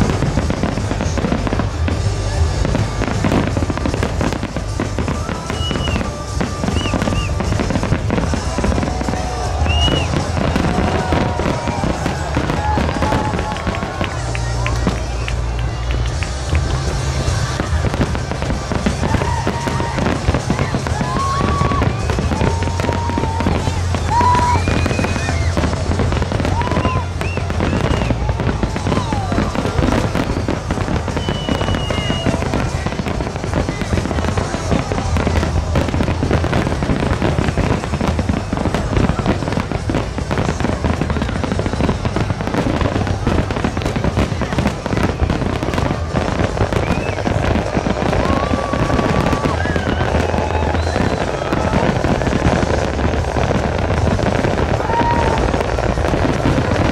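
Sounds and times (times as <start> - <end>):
fireworks crackling bangs: 0.0 - 56.9.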